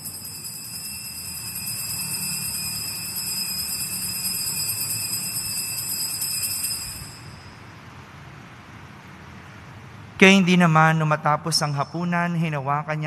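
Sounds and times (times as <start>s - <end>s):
altar bells ringing: 0.0s - 7.8s.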